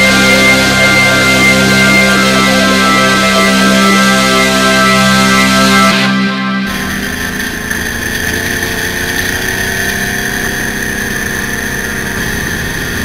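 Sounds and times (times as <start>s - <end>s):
high whine: 0.0s - 13.0s
buggy engine running: 6.7s - 13.0s.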